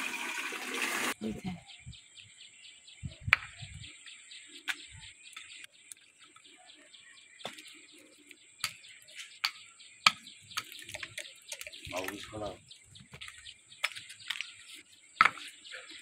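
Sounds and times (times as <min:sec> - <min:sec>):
birds chirping: 0:01.1 - 0:16.0
tile piece knocking on stony ground: 0:15.2 - 0:15.5.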